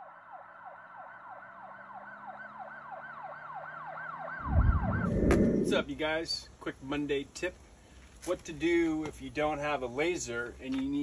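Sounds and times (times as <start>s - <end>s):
siren-like yelp: 0.3s - 5.8s.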